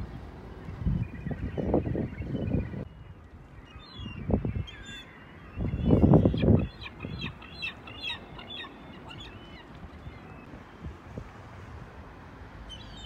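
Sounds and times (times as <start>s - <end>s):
gulls calling: 3.6s - 10.5s.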